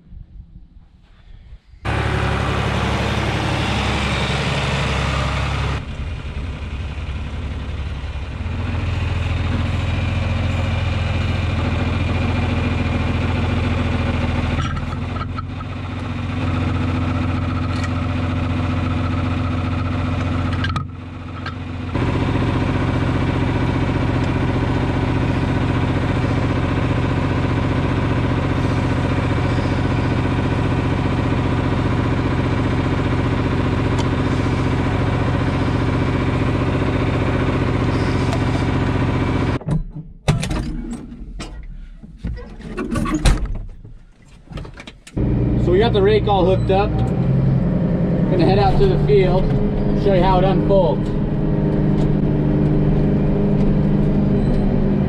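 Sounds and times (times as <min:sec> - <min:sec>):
tractor diesel engine running: 0:01.8 - 0:39.6, 0:43.8 - 0:55.0.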